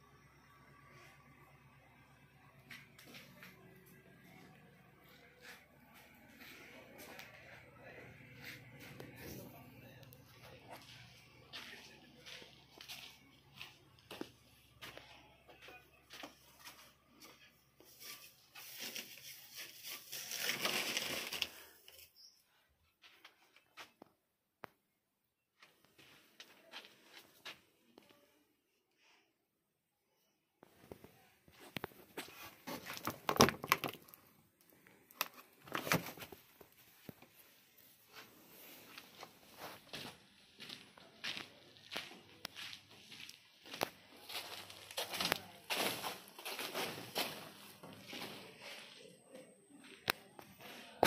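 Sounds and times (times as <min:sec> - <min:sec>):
crunching and scuffing: 0:10.3 - 0:21.2, 0:30.8 - 0:34.2, 0:35.0 - 0:49.2
plastic sacks rustling and crinkling: 0:17.9 - 0:22.0, 0:43.8 - 0:48.8.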